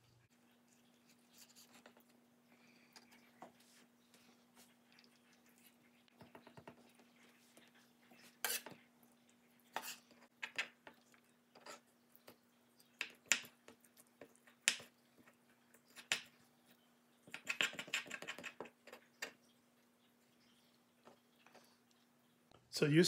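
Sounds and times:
spoon scraping fish flesh: 3.0s - 16.4s.

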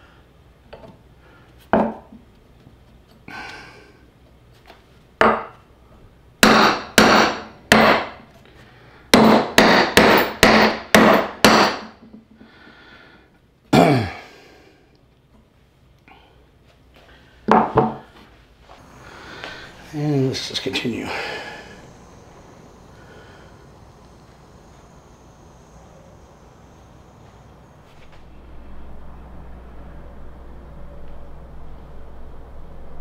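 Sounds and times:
hammer striking metal: 6.4s - 8.2s, 9.2s - 12.0s.

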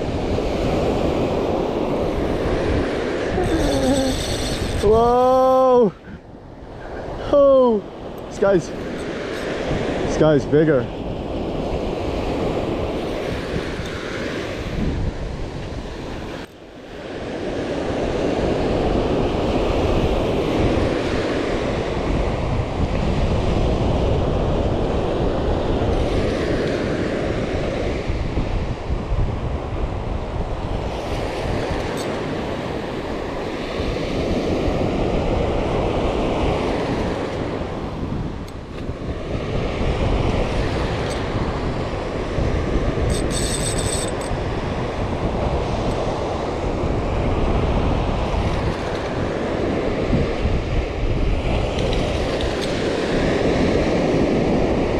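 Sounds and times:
surf breaking on beach: 0.0s - 6.0s, 6.8s - 43.2s
wind buffeting microphone: 0.0s - 54.9s.

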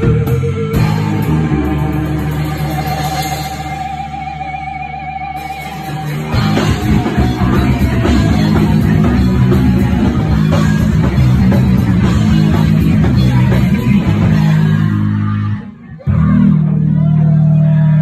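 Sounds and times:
distorted electric guitars: 0.0s - 18.0s
fast pounding drums: 5.8s - 15.0s.

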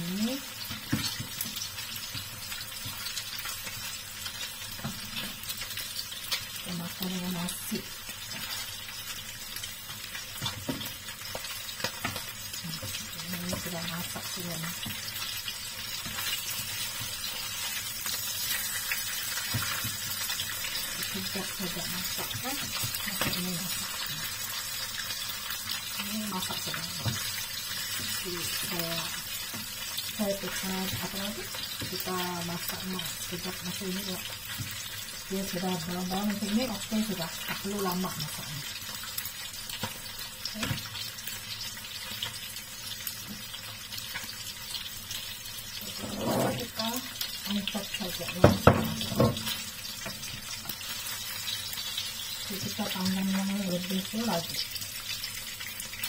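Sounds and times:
fish sizzling in a frying pan: 0.0s - 56.0s
spatula knocks on pan: 48.4s - 49.5s.

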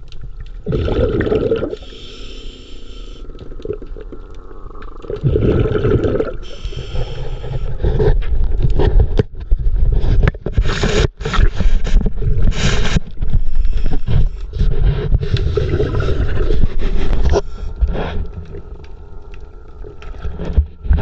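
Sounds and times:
water sloshing and rumbling: 0.0s - 2.0s, 3.2s - 21.0s.

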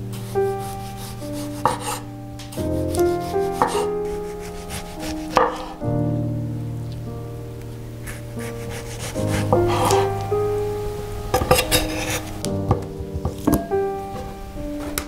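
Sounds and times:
background music with sustained chords: 0.0s - 15.0s
knife slicing tomato: 2.9s - 5.8s, 8.4s - 10.1s
knife striking wooden cutting board: 3.6s - 3.9s, 5.1s - 5.8s.

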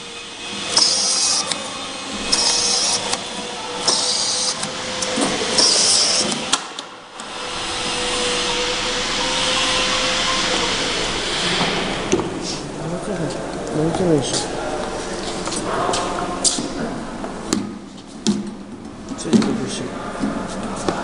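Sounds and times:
machine hum: 0.0s - 21.0s.

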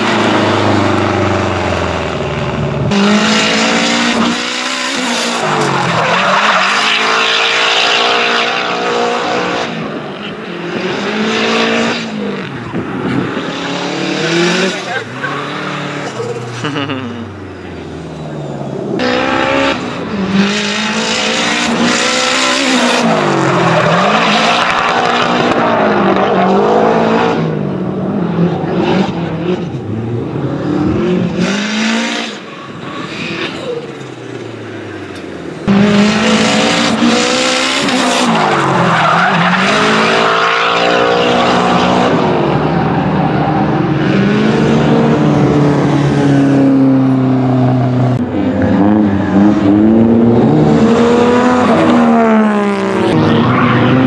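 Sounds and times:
car engine revving hard: 0.0s - 9.9s, 10.6s - 17.2s, 18.6s - 32.5s, 35.6s - 54.0s
tyres squealing and skidding: 3.6s - 8.2s, 12.0s - 20.2s, 21.2s - 26.1s, 31.8s - 35.2s, 36.0s - 44.5s, 51.1s - 54.0s.

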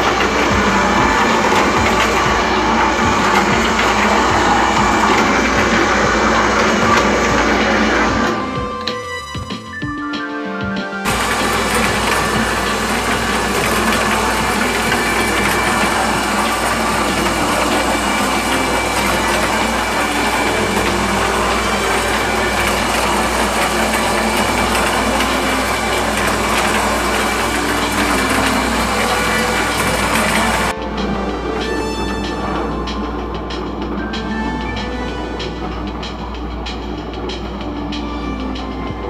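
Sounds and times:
feed pouring down metal chute: 0.0s - 8.7s, 11.0s - 39.0s
electric motor humming: 0.0s - 9.0s, 11.1s - 30.8s
feed tumbling in a drum: 0.0s - 9.0s, 11.1s - 30.8s.

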